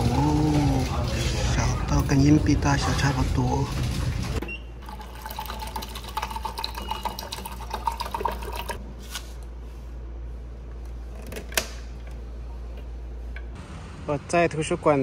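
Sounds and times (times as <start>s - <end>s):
water pouring into paper cup: 4.8s - 8.8s.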